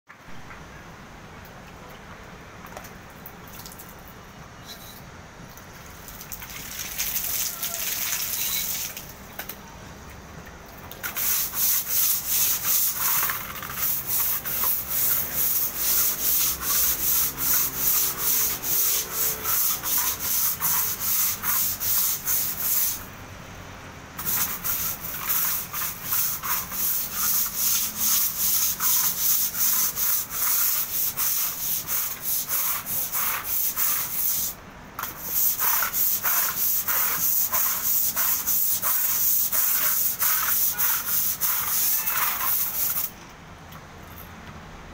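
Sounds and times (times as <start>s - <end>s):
scrub brush scrubbing wet tiles: 10.9s - 23.0s, 24.2s - 43.1s.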